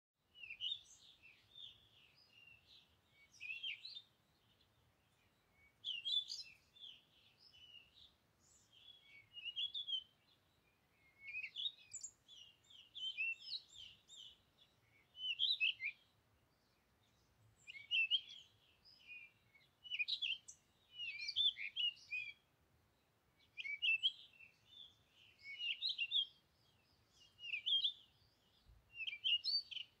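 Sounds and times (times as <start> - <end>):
songbird twittering: 0.4 - 22.4, 23.4 - 30.0.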